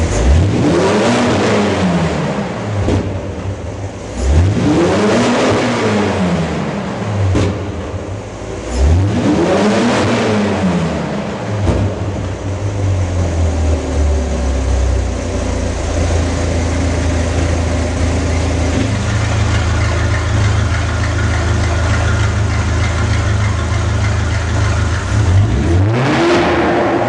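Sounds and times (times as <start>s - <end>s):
sports car engine idling and revving: 0.0s - 27.0s.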